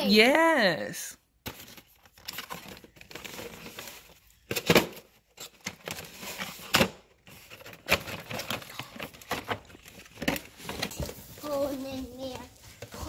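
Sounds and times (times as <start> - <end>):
cardboard and plastic packaging rustling: 1.4 - 13.0.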